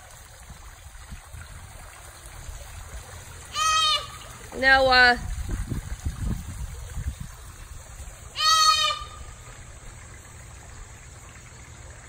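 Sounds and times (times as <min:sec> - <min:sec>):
deer fawn bleating: 0:03.5 - 0:04.2, 0:08.4 - 0:09.3
low rumbling on microphone: 0:04.9 - 0:08.3.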